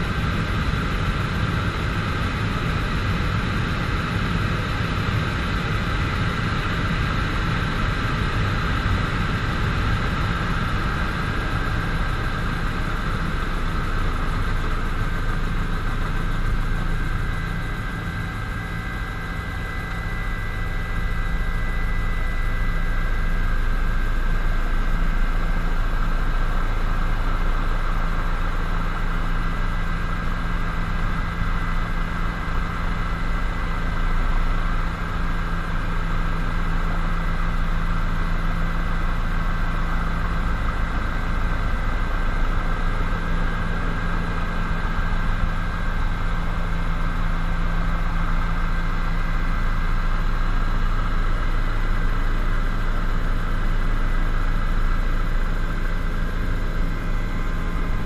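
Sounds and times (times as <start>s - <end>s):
helicopter engine and rotor drone: 0.0s - 58.0s
high-pitched whine: 0.0s - 58.0s.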